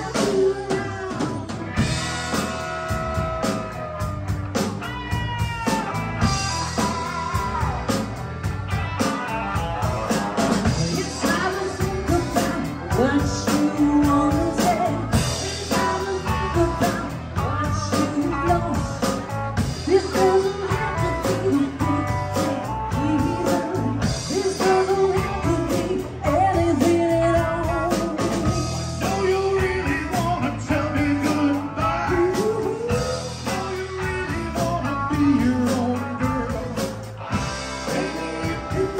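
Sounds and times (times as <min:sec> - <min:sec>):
woman singing: 0:00.0 - 0:01.6, 0:10.6 - 0:36.9
drum kit: 0:00.0 - 0:38.9
electric guitars: 0:00.0 - 0:38.9.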